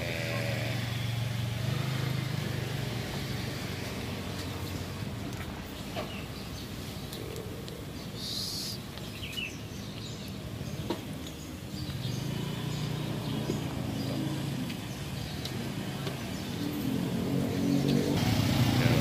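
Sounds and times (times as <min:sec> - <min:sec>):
low vehicle engine hum: 0:00.0 - 0:08.0, 0:10.4 - 0:19.0
street ambience: 0:00.0 - 0:19.0
bird chirping: 0:05.8 - 0:18.2.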